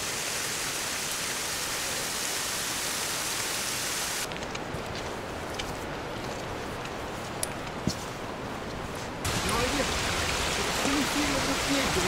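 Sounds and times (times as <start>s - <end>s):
water hissing: 9.3s - 12.0s.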